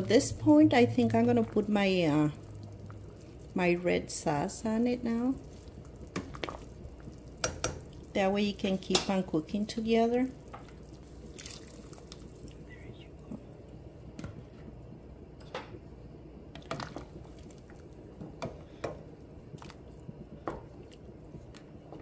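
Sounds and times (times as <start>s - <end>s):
broth boiling and bubbling: 0.0s - 22.0s
sauce poured and stirred: 10.3s - 12.7s.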